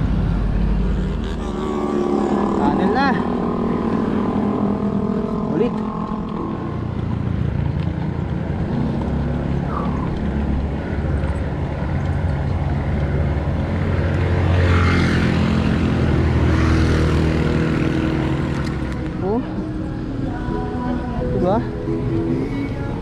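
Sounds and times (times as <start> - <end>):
motor vehicle engine running: 0.0 - 23.0
wind rushing over microphone: 2.1 - 20.1.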